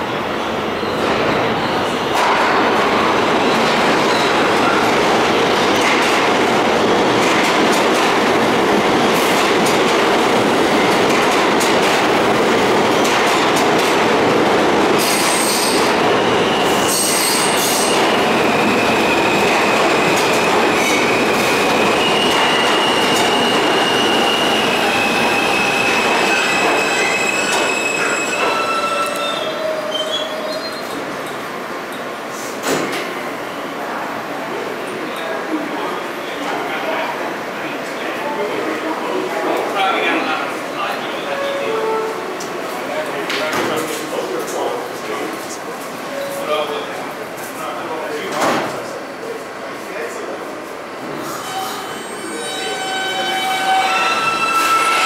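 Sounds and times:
subway train wheels rumbling: 0.0s - 55.0s
high wheel squeal: 15.0s - 19.4s, 21.8s - 31.0s, 51.3s - 55.0s.

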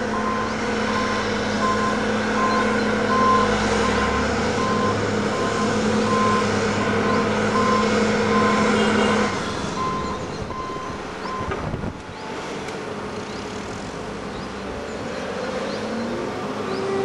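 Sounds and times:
diesel engines running hard: 0.0s - 17.0s
reversing alarm beeps: 0.1s - 6.4s, 7.1s - 8.6s, 9.8s - 11.5s.

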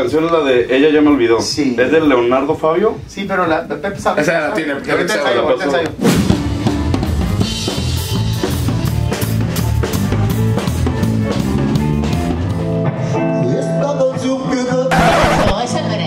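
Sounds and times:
drum kit playing a beat: 0.0s - 4.8s, 5.9s - 13.2s
bass guitar line: 6.3s - 13.0s, 14.6s - 16.0s.

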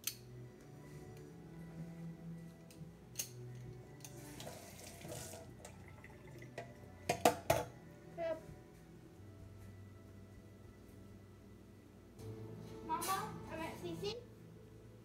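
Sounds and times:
kitchen tap running: 4.4s - 6.8s.

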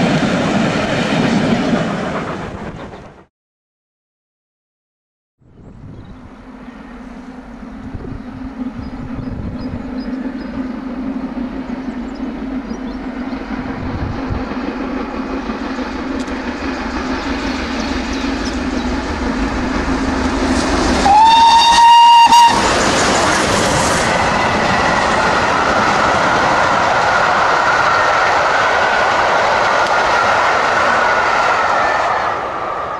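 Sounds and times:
steam locomotives working: 0.0s - 3.3s, 6.1s - 32.9s
steam whistle: 21.0s - 22.7s.

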